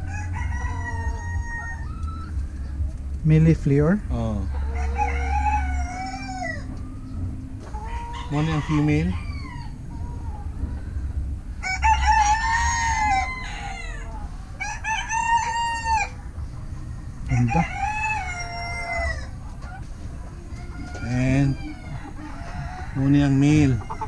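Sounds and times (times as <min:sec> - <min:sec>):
roosters crowing: 0:00.0 - 0:24.0
steady low rumble: 0:00.0 - 0:24.0.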